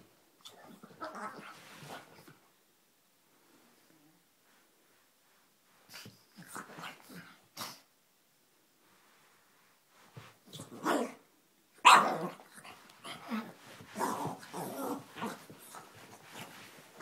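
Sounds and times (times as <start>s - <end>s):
dog barking: 11.8s - 12.2s.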